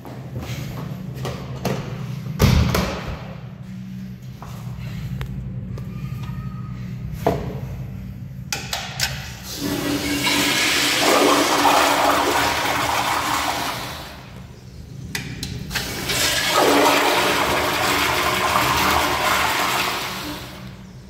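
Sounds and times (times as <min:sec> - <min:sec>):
toilet flushing: 0:09.4 - 0:14.4, 0:15.7 - 0:21.0.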